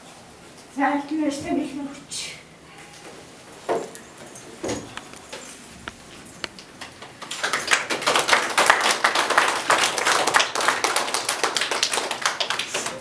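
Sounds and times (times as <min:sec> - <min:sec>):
group of people clapping: 0:06.7 - 0:13.0.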